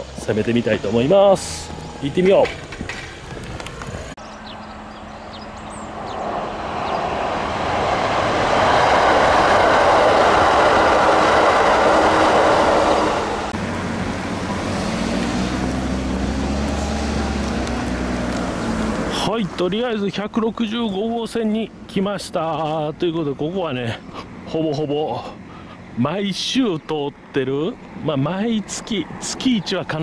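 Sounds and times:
electric train rumbling by: 0:00.0 - 0:30.0.

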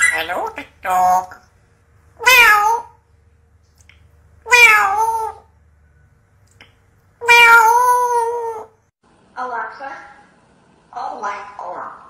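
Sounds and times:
parrot imitating cat meow: 0:02.2 - 0:03.0, 0:04.4 - 0:05.5, 0:07.2 - 0:08.8.

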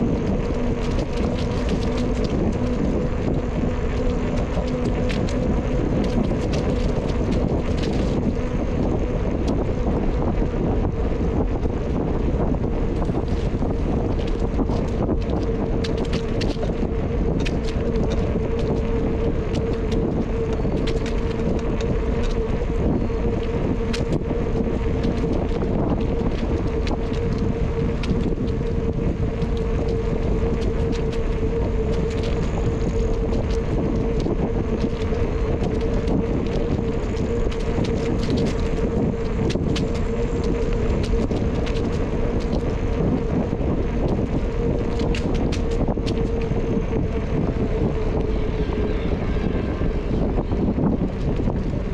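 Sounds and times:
bicycle tyres rolling on trail: 0:00.0 - 0:51.9
steady hum: 0:00.0 - 0:51.9
wind on microphone: 0:00.0 - 0:51.9.

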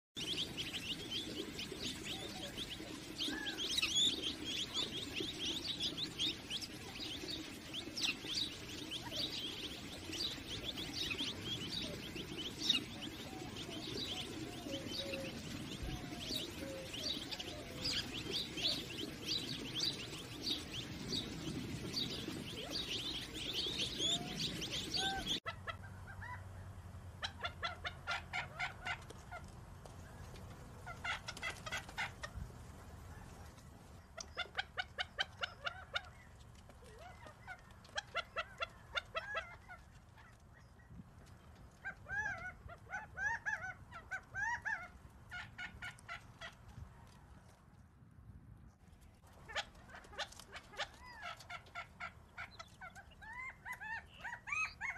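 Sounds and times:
quail chicks peeping: 0:00.2 - 0:25.5, 0:30.0 - 0:40.5, 0:49.3 - 0:54.9
rapid runs of quail calls: 0:00.2 - 0:26.4, 0:30.0 - 0:40.4.

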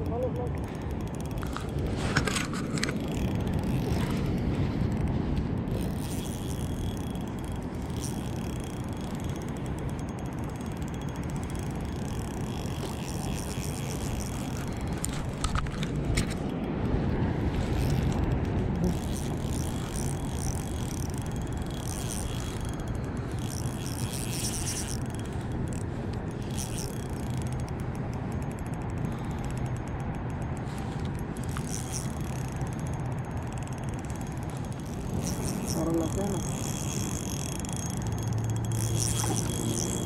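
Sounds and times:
spinning reel clicking: 0:00.0 - 0:16.7, 0:17.6 - 0:40.0
wind rumble on microphone: 0:00.0 - 0:29.6.

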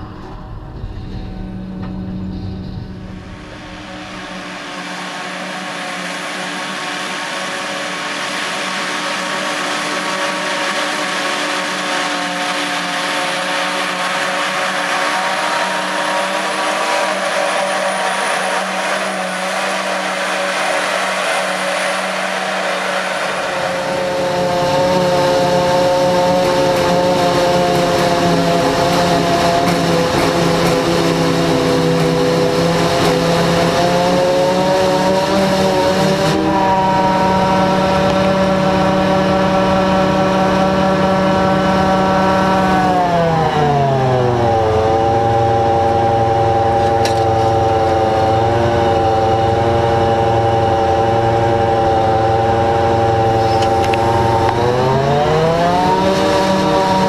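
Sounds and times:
heavy low rumble: 0:00.0 - 0:34.8
forage harvester engine drone: 0:00.0 - 0:57.0.

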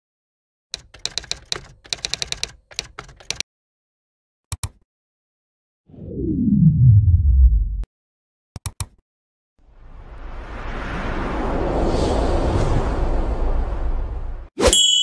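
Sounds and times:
keyboard key clicks: 0:00.8 - 0:03.4, 0:04.5 - 0:04.8, 0:08.6 - 0:09.0
low falling whoosh: 0:05.9 - 0:07.9, 0:09.7 - 0:14.5
mouse clicks: 0:08.6 - 0:09.0.

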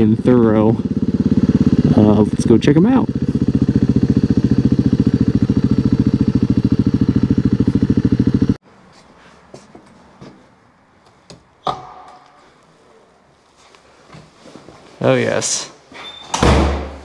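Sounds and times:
motorcycle engine idling: 0:00.0 - 0:08.6.

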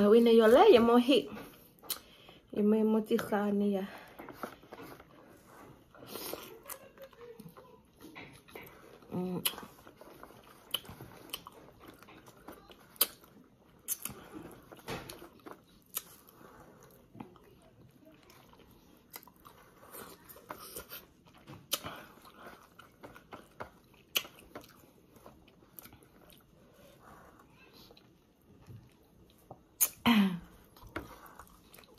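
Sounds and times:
crunchy fruit bites and chewing: 0:08.2 - 0:26.5.

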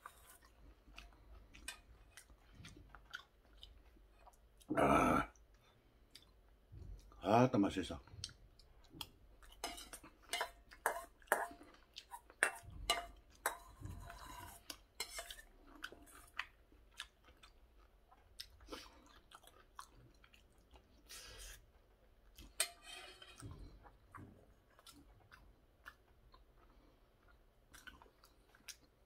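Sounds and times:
chewing: 0:00.0 - 0:07.2, 0:08.0 - 0:29.0
spoon scraping metal bowl: 0:09.6 - 0:11.5, 0:12.4 - 0:15.5, 0:22.5 - 0:23.4.

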